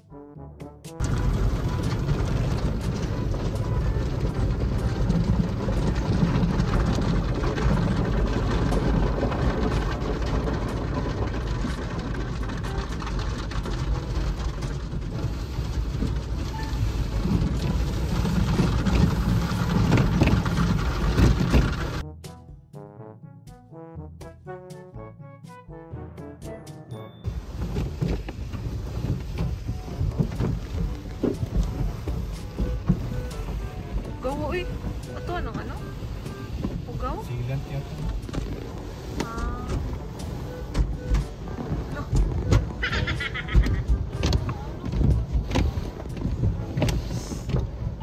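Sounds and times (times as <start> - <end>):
deep rumble: 0.9 - 22.1, 27.2 - 48.0
water spray drumming on windshield: 1.0 - 22.0, 27.3 - 48.0.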